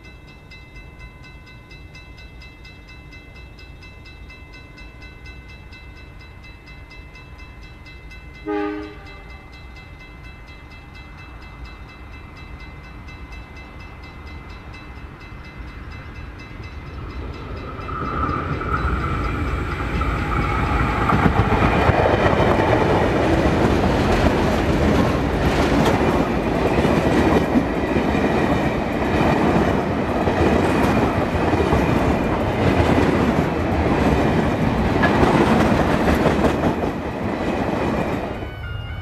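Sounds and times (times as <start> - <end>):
diesel locomotive passing: 1.8 - 39.0
wheels clacking over rail joints: 16.8 - 38.4.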